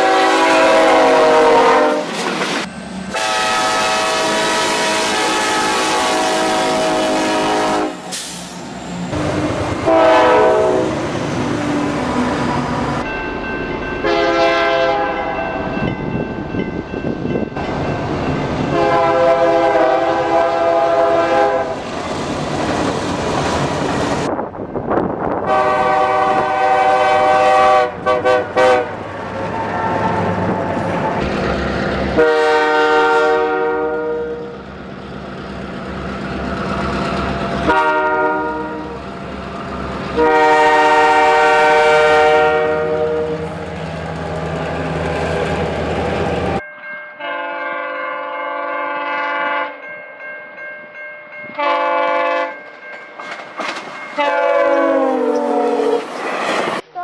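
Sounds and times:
locomotive air horn blasts: 0.0s - 2.2s, 3.1s - 8.4s, 9.8s - 11.0s, 14.0s - 15.4s, 18.7s - 21.8s, 25.4s - 29.0s, 32.2s - 34.6s, 37.6s - 39.0s, 40.2s - 43.5s, 47.2s - 49.8s, 51.6s - 52.6s, 54.2s - 56.0s
train passing: 0.0s - 57.0s.

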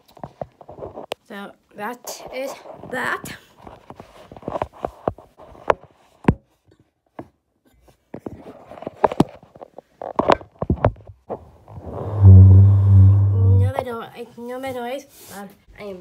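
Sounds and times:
loud steady low hum: 11.9s - 13.8s.

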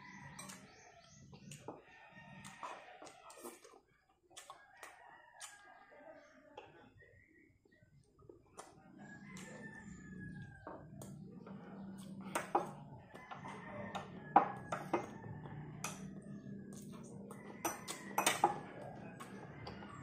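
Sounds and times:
person chewing: 2.4s - 5.6s
cutlery clinking on a plate: 17.6s - 18.7s.

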